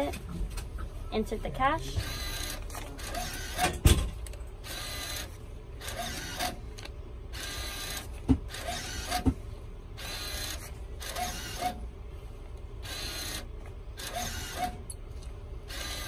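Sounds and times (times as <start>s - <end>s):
bill acceptor motor whirs: 1.9s - 12.0s, 12.8s - 15.0s, 15.6s - 16.0s.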